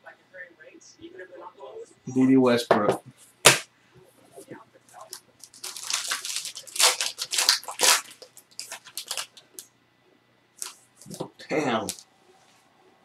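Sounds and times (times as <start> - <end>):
plastic packaging crinkling and tearing: 4.9 - 9.6, 10.6 - 12.0.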